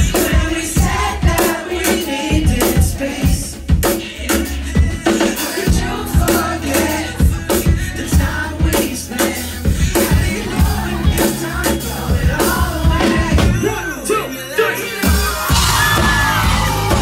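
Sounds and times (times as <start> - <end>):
drum beat: 0.0 - 13.7, 15.2 - 17.0
bass: 0.0 - 17.0.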